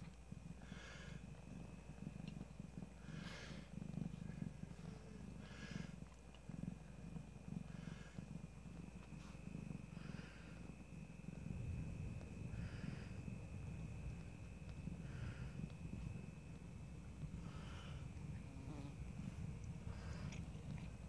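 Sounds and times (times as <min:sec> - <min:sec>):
cat purring: 0:00.0 - 0:21.0
soft breath: 0:00.6 - 0:01.5, 0:02.9 - 0:06.2, 0:07.6 - 0:08.4, 0:09.0 - 0:10.8, 0:12.4 - 0:13.5, 0:14.9 - 0:16.6, 0:17.2 - 0:21.0.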